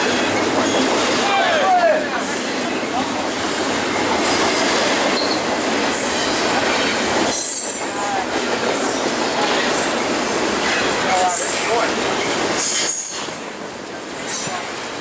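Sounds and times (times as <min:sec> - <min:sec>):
steel wheels rushing on rail: 0:00.0 - 0:15.0
high-pitched wheel squeals: 0:05.2 - 0:05.4.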